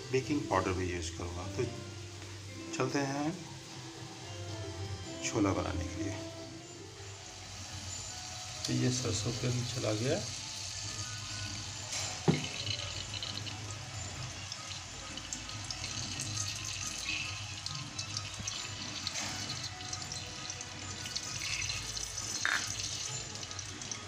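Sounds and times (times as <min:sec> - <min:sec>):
oil hissing: 0:06.1 - 0:24.0.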